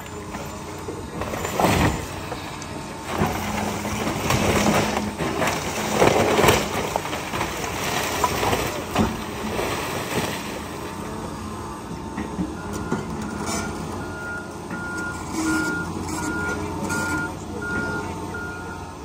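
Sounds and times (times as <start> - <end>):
diesel engine running: 0.0 - 19.0
timber debris breaking: 1.2 - 2.2, 3.1 - 10.6
excavator backup alarm beeping: 12.5 - 19.0.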